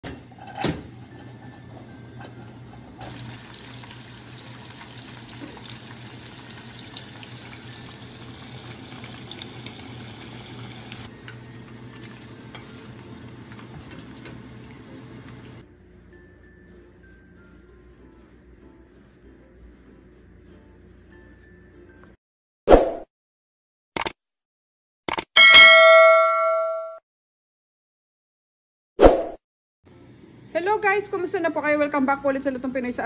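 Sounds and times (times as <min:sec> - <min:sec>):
oil sizzling and crackling: 0:03.0 - 0:15.6.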